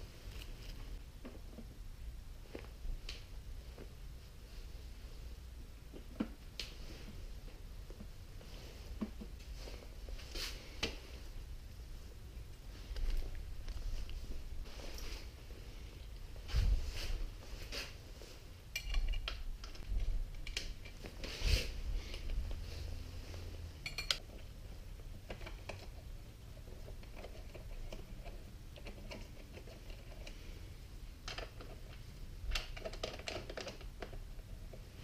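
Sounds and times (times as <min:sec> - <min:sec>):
hands handling plastic and metal parts: 0:31.2 - 0:35.0.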